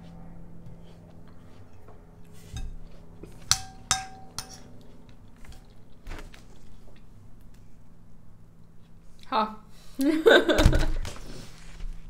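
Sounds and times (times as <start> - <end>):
metal spoon clinking on ceramic bowl: 3.4 - 4.7.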